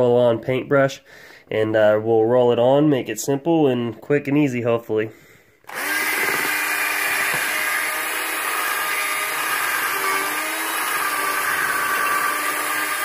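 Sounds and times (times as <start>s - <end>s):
electric drill mixing compound: 5.7s - 13.0s.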